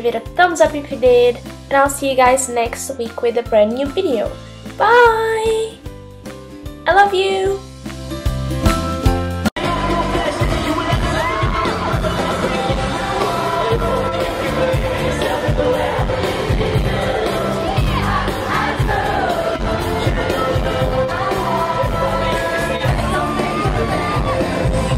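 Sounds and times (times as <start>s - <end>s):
crowd noise: 9.6s - 24.9s
singers performing over music: 9.6s - 24.9s.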